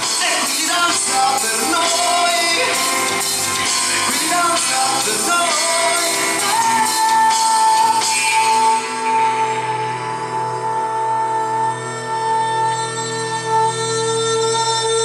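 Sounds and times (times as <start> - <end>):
man singing: 0.0 - 10.5
live rock band playing: 0.0 - 15.0.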